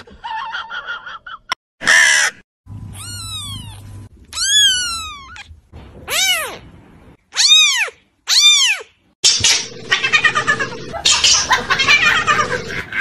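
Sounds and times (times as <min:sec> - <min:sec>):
kitten mewing: 0:02.9 - 0:05.5, 0:06.1 - 0:06.6, 0:07.3 - 0:08.9.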